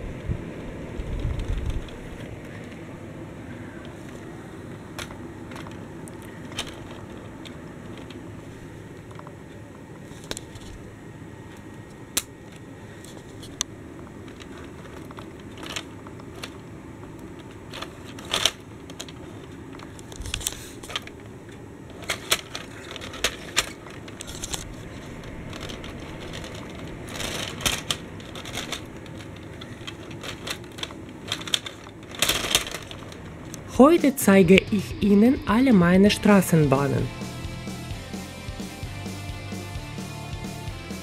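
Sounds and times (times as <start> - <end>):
low background hum: 0.0 - 41.0
toy train clicking on plastic track: 4.9 - 8.2, 14.2 - 33.6.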